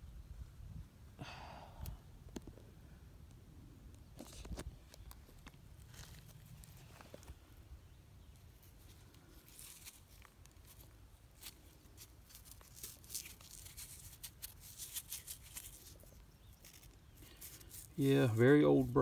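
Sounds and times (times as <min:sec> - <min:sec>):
rustling and scratchy clicks of stone: 0:03.9 - 0:07.6, 0:08.3 - 0:19.0.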